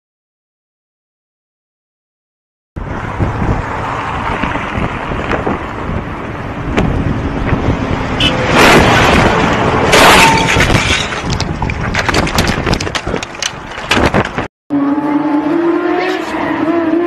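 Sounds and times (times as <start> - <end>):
wind rushing over microphone: 2.8 - 14.5
bicycle crashing on road: 9.9 - 14.5.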